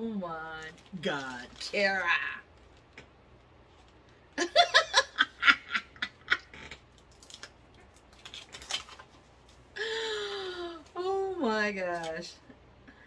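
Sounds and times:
woman laughing hard: 4.4s - 6.5s.

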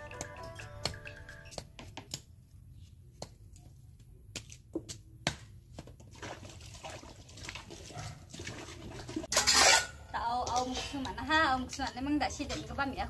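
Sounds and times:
water splashing in a basin: 6.0s - 9.3s.

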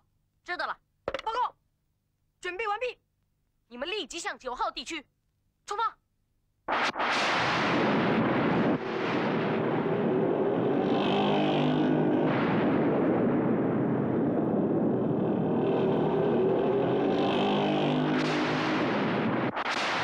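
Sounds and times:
rain and wind rushing: 7.0s - 20.0s
cartoon motorcycle engine: 9.5s - 19.5s.

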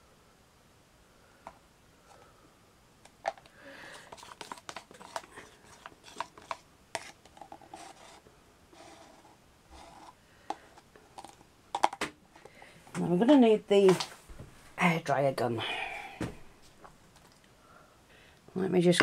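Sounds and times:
stir stick scraping plastic cup: 3.2s - 11.9s.

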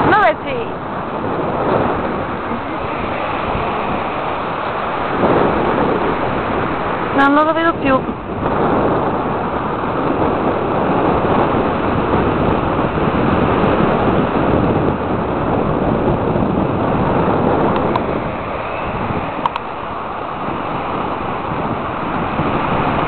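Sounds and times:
wind buffeting microphone: 0.0s - 23.0s.

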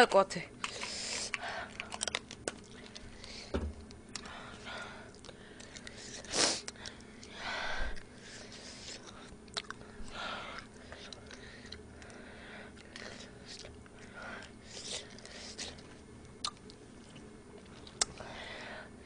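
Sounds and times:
faint chewing and mouth clicks: 0.6s - 4.4s, 5.0s - 7.4s, 8.0s - 9.9s, 10.5s - 18.3s
woman breathing sharply: 18.2s - 19.0s.

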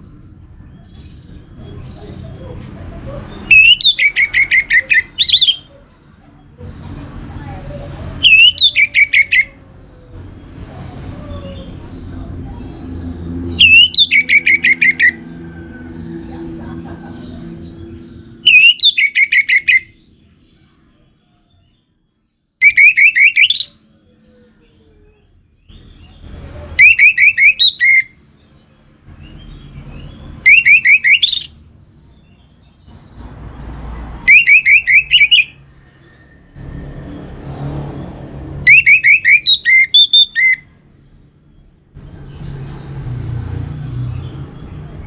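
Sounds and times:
thrush singing: 1.4s - 5.7s, 6.5s - 19.9s, 33.8s - 40.7s.

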